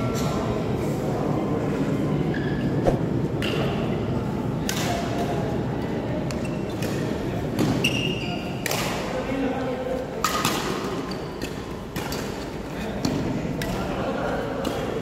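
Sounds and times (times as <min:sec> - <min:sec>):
rackets hitting shuttlecock: 0:08.6 - 0:09.1, 0:10.2 - 0:13.9.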